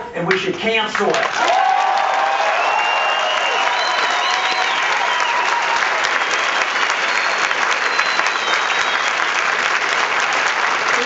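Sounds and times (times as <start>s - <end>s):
audience applauding: 0.9s - 11.0s.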